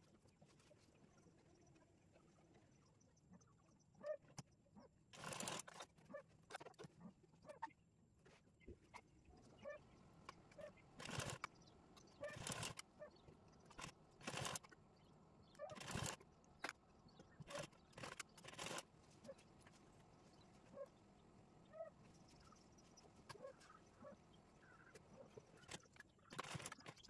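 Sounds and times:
faint animal calls: 3.2 - 4.9, 9.4 - 11.4, 21.6 - 26.7.

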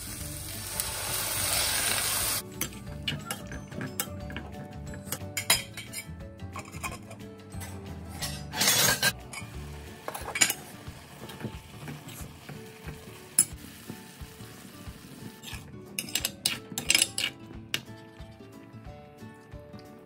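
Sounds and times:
stew simmering: 9.4 - 18.3.

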